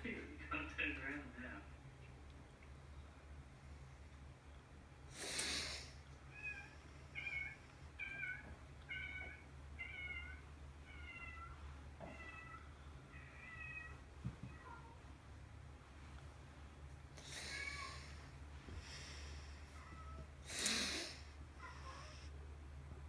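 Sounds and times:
cat meowing: 0:06.3 - 0:15.0, 0:17.2 - 0:18.2.

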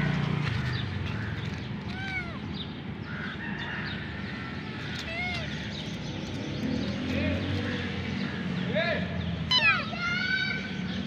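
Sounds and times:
kitten meowing: 0:01.9 - 0:02.5, 0:05.0 - 0:05.5, 0:09.5 - 0:09.9.

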